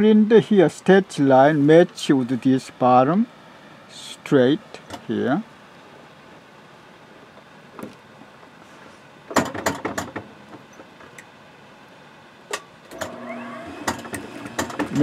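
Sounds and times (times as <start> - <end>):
sewing machine motor hum: 12.9 - 15.0.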